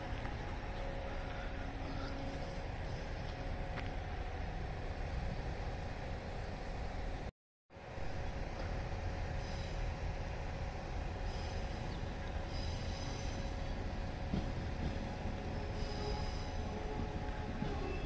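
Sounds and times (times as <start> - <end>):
electric train rumbling: 0.0 - 18.0
train wheel squeals: 9.3 - 9.9, 11.2 - 18.0.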